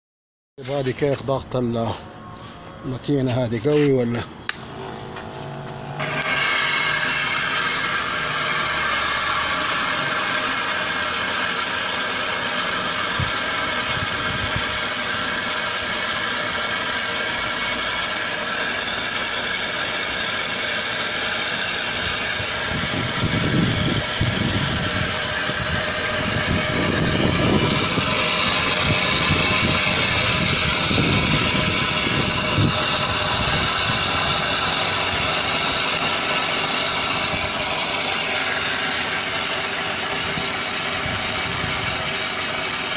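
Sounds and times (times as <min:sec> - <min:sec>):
sprayer pump motor hum: 0:04.2 - 0:42.9
low rumbling: 0:21.7 - 0:42.9.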